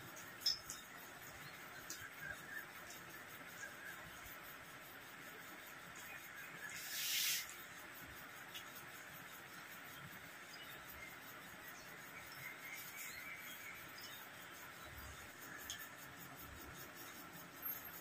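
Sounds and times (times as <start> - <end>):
short hiss: 6.7 - 7.6.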